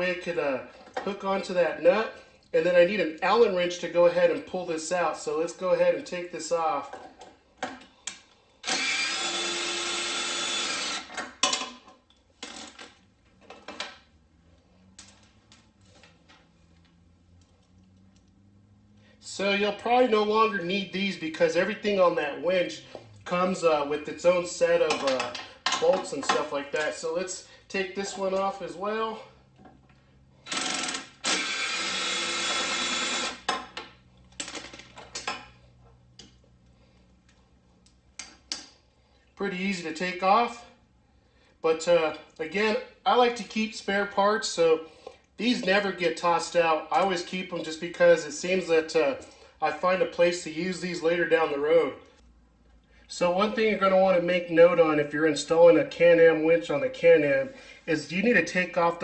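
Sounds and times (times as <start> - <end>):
power driver running: 8.6 - 11.2, 30.4 - 33.5.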